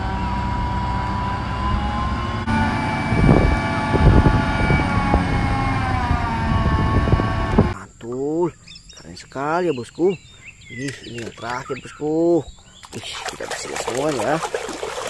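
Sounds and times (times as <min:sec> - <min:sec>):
diesel engine rumble: 0:00.0 - 0:07.8
hydraulic whine: 0:00.0 - 0:07.8.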